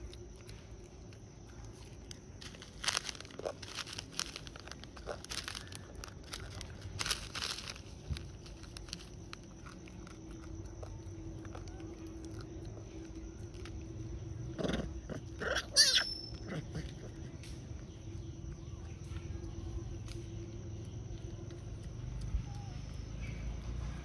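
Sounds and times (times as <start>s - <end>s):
foil snack packet crackling: 0.0s - 12.6s.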